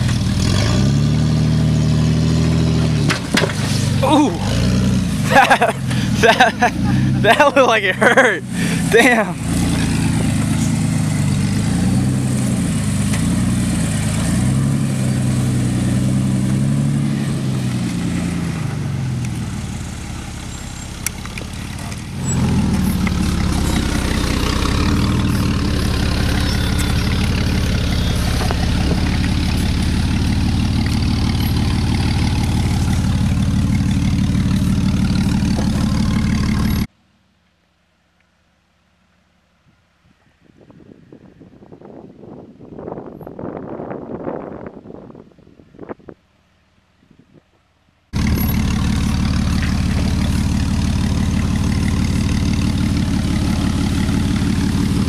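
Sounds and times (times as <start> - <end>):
engine revving: 0.0 - 36.9, 48.2 - 55.0.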